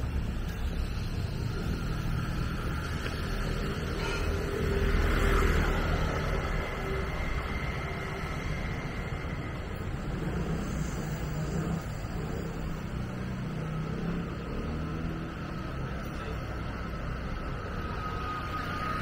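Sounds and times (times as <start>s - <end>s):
traffic rumble: 0.0s - 19.0s
vehicle passing by: 0.9s - 19.0s.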